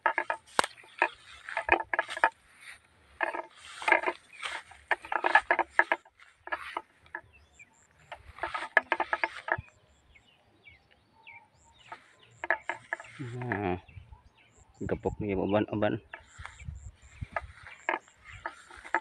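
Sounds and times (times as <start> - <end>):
footsteps rustling through grass: 0.0 - 7.0
insect chirps: 0.0 - 13.9, 15.8 - 19.0
bird chirps: 0.0 - 19.0.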